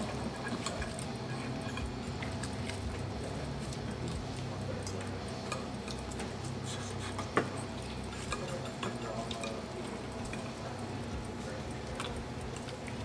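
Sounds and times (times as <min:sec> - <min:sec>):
knife and fork scraping a plate: 0:00.0 - 0:03.9, 0:05.4 - 0:10.6
low background hum: 0:00.0 - 0:13.0.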